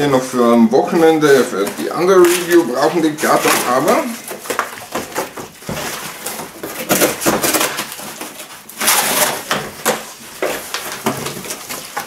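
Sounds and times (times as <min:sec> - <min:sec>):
cardboard ripping: 0:00.9 - 0:12.0
knife sawing cardboard: 0:05.7 - 0:10.0.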